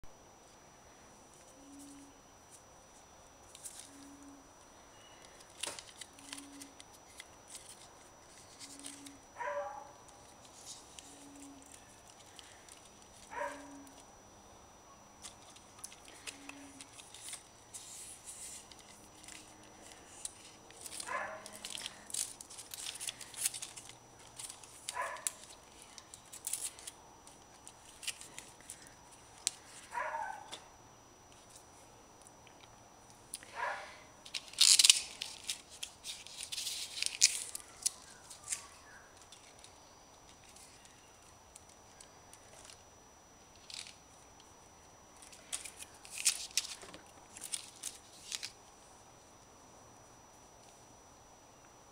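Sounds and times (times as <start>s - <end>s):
plastic connectors crackling and clicking: 5.2s - 9.2s, 15.2s - 29.6s, 34.2s - 42.8s, 43.5s - 44.5s, 45.2s - 48.6s.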